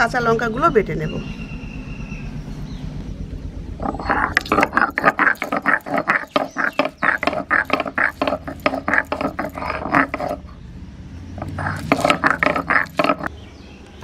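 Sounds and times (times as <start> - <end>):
stone roller crushing on stone slab: 3.8 - 10.5, 11.4 - 13.3.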